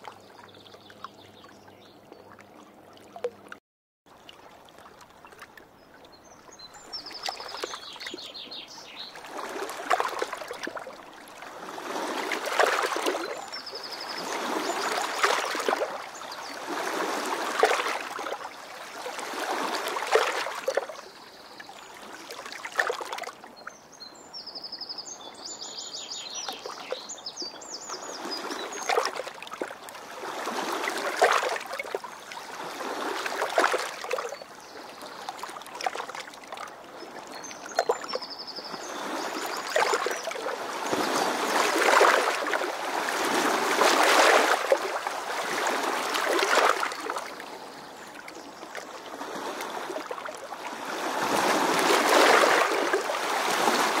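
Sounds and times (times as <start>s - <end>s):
river water washing in swells: 6.6s - 23.4s, 26.3s - 54.0s.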